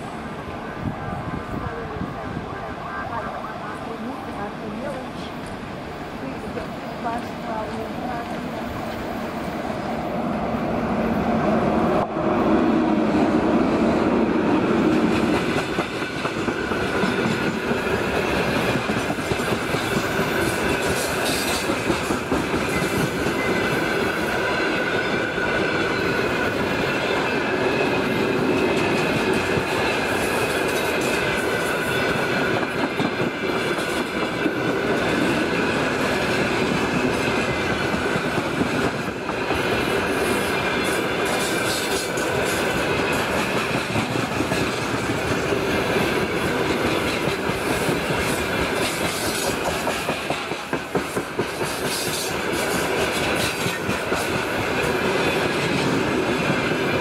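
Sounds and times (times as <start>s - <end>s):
locomotive passing: 0.0s - 57.0s
wheels clattering on rails: 14.8s - 57.0s.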